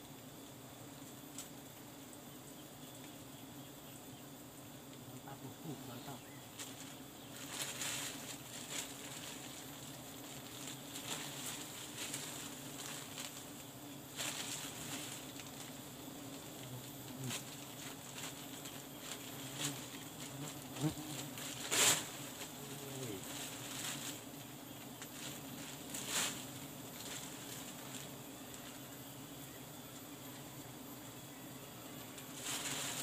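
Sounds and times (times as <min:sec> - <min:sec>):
bees buzzing: 0:00.0 - 0:33.0
plastic bag rustling: 0:06.6 - 0:28.7, 0:32.1 - 0:33.0.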